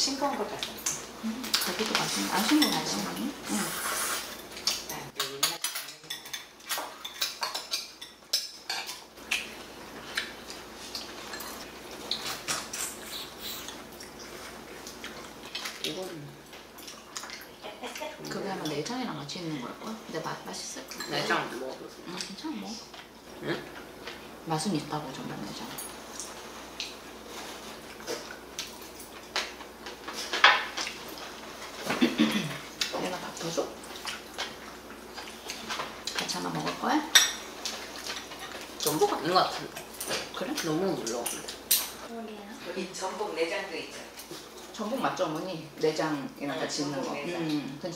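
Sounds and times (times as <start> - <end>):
chopsticks clinking on bowls: 4.5 - 9.0.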